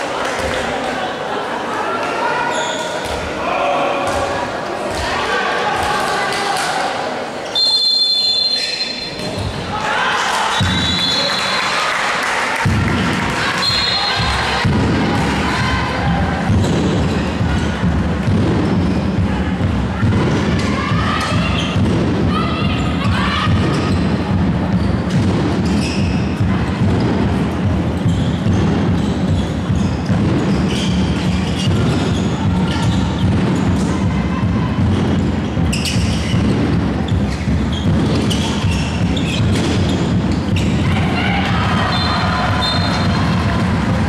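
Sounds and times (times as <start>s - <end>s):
low rumble of sports hall: 0.0s - 44.0s
ball bouncing on court floor: 4.1s - 5.2s, 12.6s - 22.3s, 22.9s - 34.0s, 34.8s - 44.0s
players calling: 27.8s - 44.0s.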